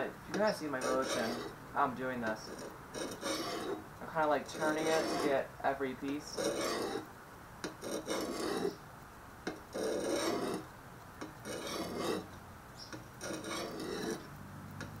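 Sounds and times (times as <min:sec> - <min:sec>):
shovel scraping sharpening stone: 0:00.4 - 0:01.5, 0:02.5 - 0:03.8, 0:04.5 - 0:05.4, 0:06.3 - 0:07.0, 0:07.8 - 0:08.8, 0:09.7 - 0:10.6, 0:11.4 - 0:12.3, 0:13.2 - 0:14.2.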